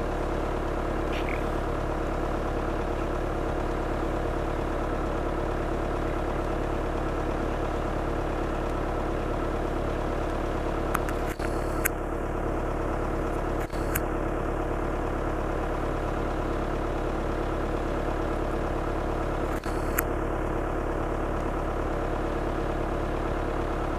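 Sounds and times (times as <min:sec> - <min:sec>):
engine idling: 0:00.0 - 0:23.9
short clicks: 0:10.9 - 0:11.9, 0:13.6 - 0:14.0, 0:19.5 - 0:20.1.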